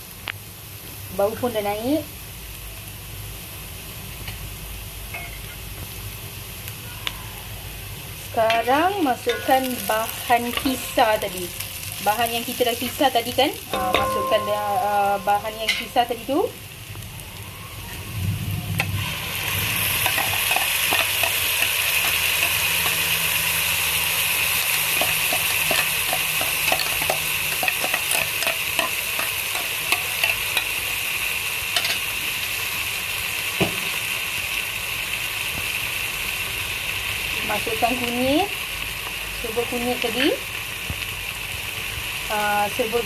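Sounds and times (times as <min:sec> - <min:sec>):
paste sizzling in hot oil: 0:07.8 - 0:17.7, 0:18.8 - 0:43.0.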